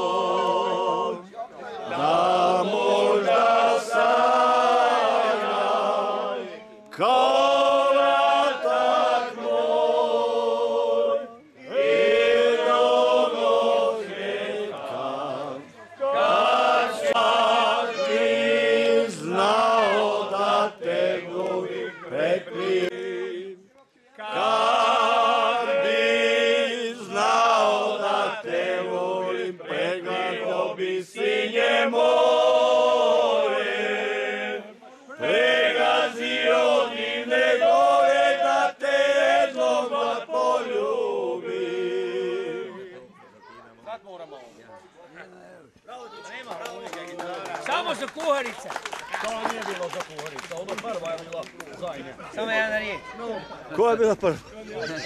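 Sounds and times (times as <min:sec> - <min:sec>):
men singing together: 0:00.0 - 0:01.2, 0:01.8 - 0:23.6, 0:24.2 - 0:42.9.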